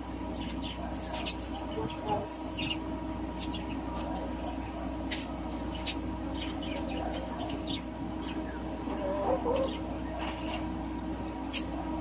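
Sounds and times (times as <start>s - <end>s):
background hum: 0.0s - 12.0s
wavering animal call: 8.9s - 9.8s.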